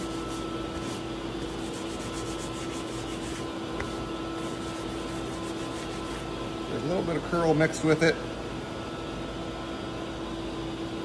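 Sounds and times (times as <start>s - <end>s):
paper towel rubbing wood: 0.0s - 3.5s, 4.4s - 6.3s
steady background hum: 0.0s - 11.0s.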